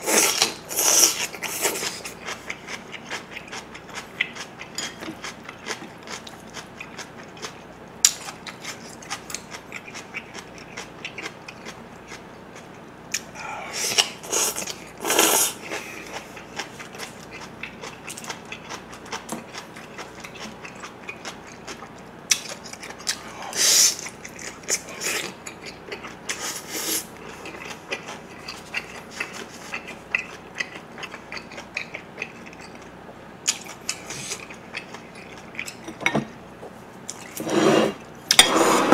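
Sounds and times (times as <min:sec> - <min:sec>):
loud eating noises: 0:00.0 - 0:38.9
wet chewing clicks: 0:02.0 - 0:13.3, 0:27.1 - 0:35.9.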